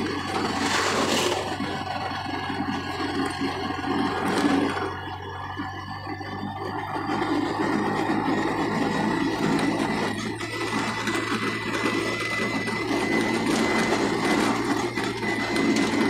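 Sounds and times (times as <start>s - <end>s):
tyre noise on concrete: 0.0s - 2.0s
vehicle engine hum: 0.0s - 16.0s.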